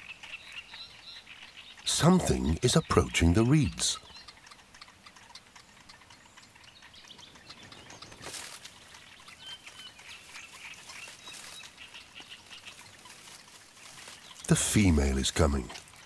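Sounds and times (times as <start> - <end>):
high bird chirps: 0.0 - 13.4
small clicks: 2.8 - 14.5
reeds rustling: 7.4 - 16.0.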